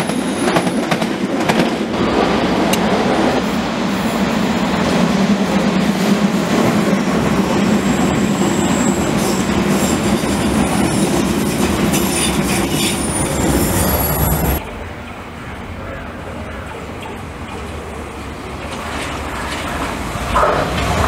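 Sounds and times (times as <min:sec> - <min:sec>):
train rolling rumble: 0:00.0 - 0:21.0
high-pitched wheel squeal: 0:07.9 - 0:11.1, 0:11.9 - 0:14.6.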